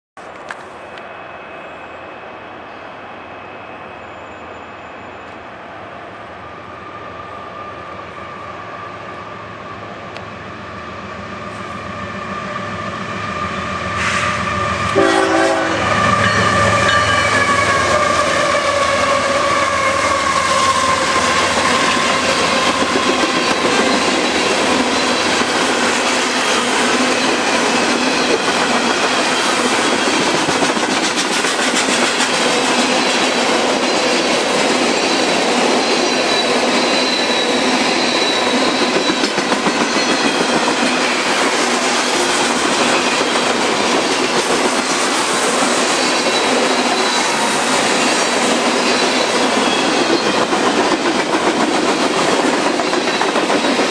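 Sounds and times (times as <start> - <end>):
faint wheel squeal: 0.7 - 5.5, 35.0 - 40.5, 45.9 - 50.5
train horn: 11.5 - 23.2
train wheels clacking over rails: 13.9 - 53.9.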